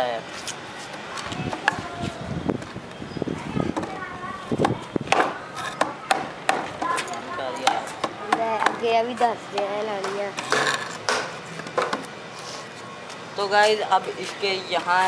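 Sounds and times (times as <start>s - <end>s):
hammer knocking on wooden box: 4.6s - 6.9s.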